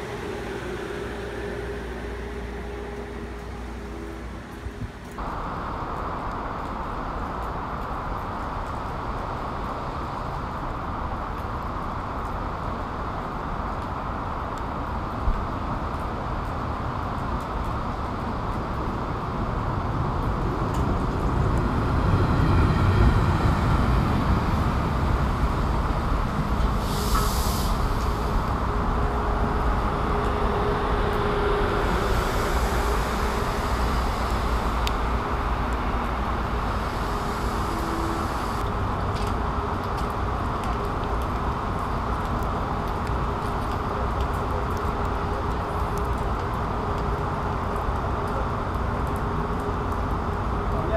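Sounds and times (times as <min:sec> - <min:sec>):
train wheels rumbling on rail: 0:00.0 - 0:10.4, 0:15.2 - 0:50.9
steady background hiss: 0:24.6 - 0:38.6
brief sharp hiss: 0:26.7 - 0:28.4.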